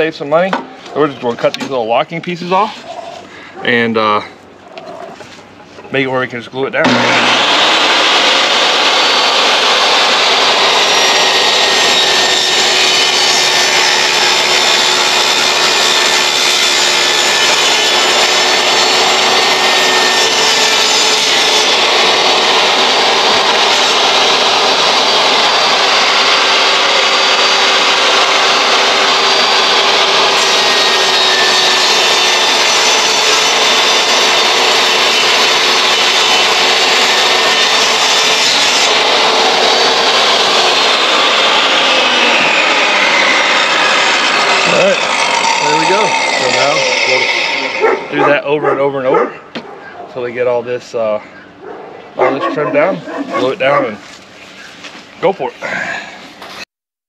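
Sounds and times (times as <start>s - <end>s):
table saw motor whine: 6.8s - 49.0s.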